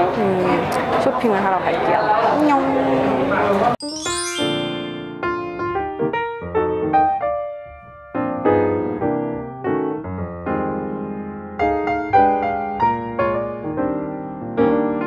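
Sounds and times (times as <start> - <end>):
piano music: 3.8 - 15.0.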